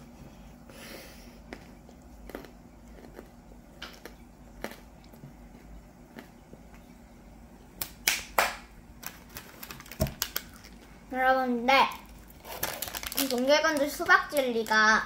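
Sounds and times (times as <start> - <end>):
gummy candy crunching: 1.5 - 6.4, 9.0 - 10.9, 11.9 - 14.9.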